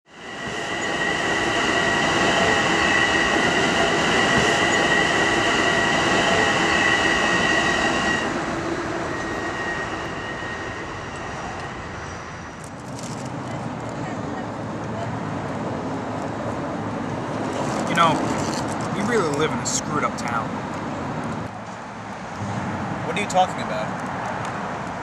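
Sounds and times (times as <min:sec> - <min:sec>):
train wheels squealing on rails: 0:00.1 - 0:12.8
train rumble: 0:00.1 - 0:23.9.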